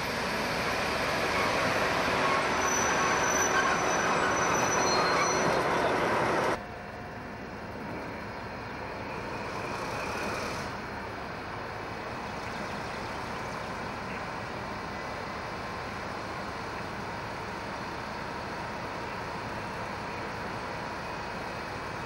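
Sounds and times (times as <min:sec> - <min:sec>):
diesel locomotive engine running: 0:00.0 - 0:22.0.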